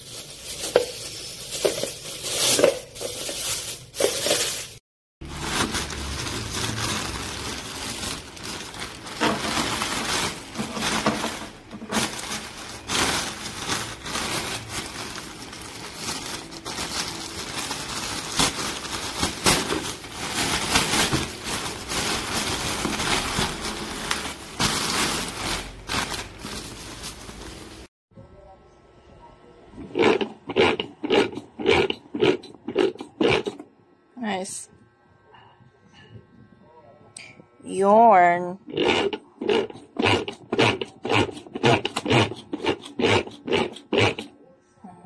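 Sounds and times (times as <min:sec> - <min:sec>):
crackling handling noise: 0:00.0 - 0:27.9.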